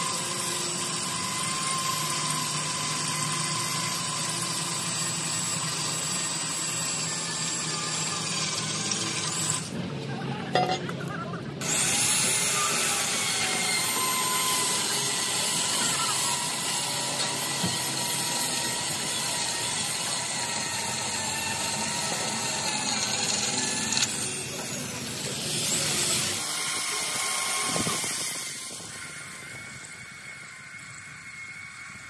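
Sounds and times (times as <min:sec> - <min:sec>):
power tool whining on steel: 0:00.0 - 0:09.8, 0:11.6 - 0:32.0.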